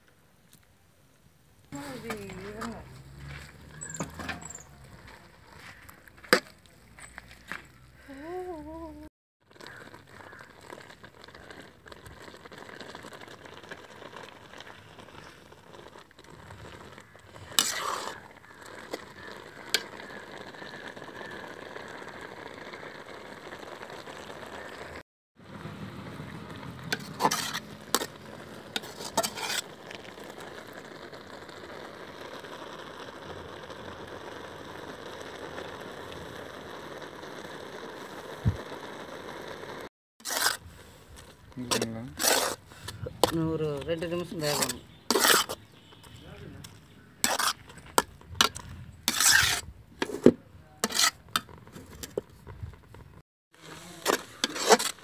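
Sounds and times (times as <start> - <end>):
pot bubbling and hissing: 1.7 - 55.0
metal ladle scraping pot: 1.8 - 5.6, 16.2 - 20.7, 26.8 - 30.2, 40.2 - 43.5, 44.2 - 52.3, 53.6 - 55.0.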